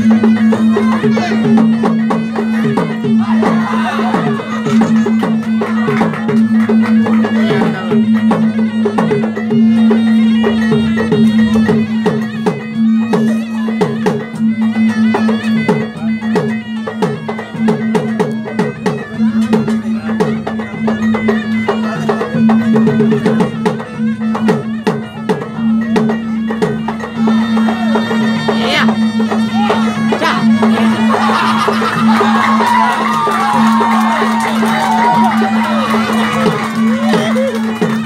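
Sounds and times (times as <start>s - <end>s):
drums beating fast rhythm: 0.0s - 38.0s
sustained reed pipe tone: 7.0s - 16.1s.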